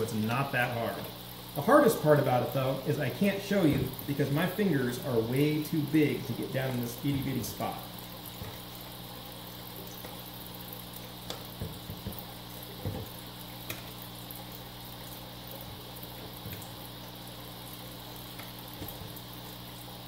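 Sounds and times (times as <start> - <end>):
low hum and hiss: 0.0 - 20.0
soft plastic taps and knocks: 11.3 - 12.2, 12.8 - 13.8.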